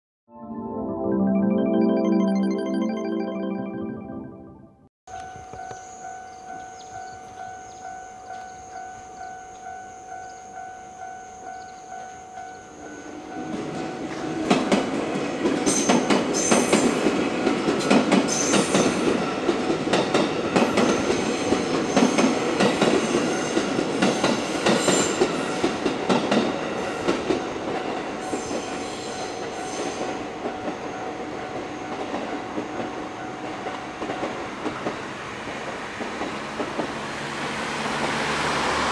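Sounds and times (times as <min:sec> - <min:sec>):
level-crossing alarm bell ringing: 0:05.1 - 0:14.4.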